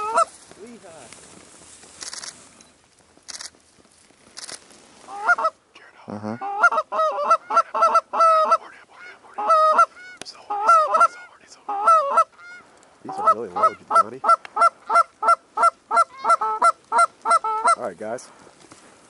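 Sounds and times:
geese honking: 0:00.0 - 0:00.3, 0:05.1 - 0:05.6, 0:06.3 - 0:18.0.

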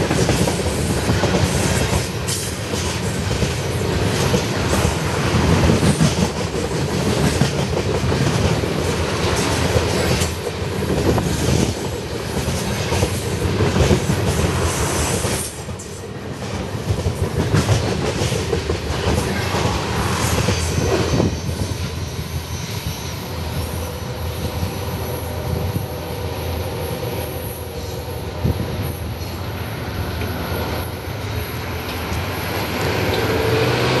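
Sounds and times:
train wheels clattering over rail joints: 0:00.0 - 0:21.8
high wheel squeal: 0:20.0 - 0:25.6.

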